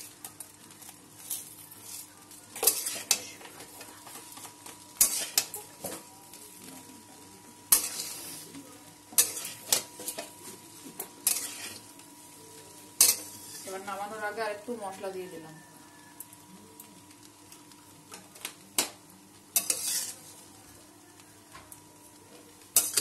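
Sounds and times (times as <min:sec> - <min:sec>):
faint frying sizzle: 0:00.0 - 0:23.0
spatula scraping metal pan: 0:02.6 - 0:03.3, 0:09.2 - 0:09.8, 0:11.2 - 0:11.8, 0:19.6 - 0:20.3.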